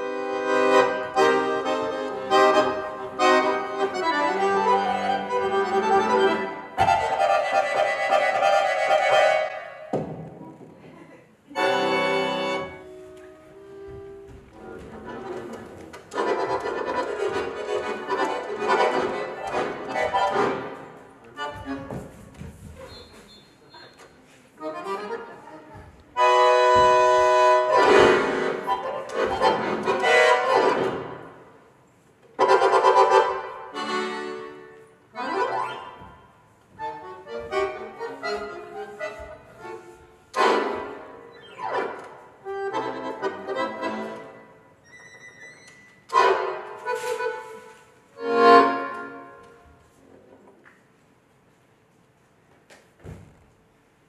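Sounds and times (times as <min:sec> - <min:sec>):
squeezebox music: 0:35.4 - 0:36.0.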